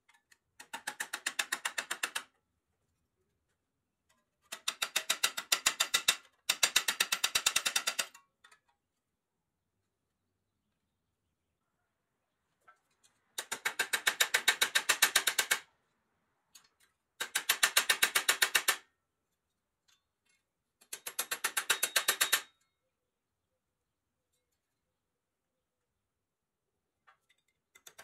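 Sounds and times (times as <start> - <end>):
small hammer tapping on steel: 19.9 - 22.7.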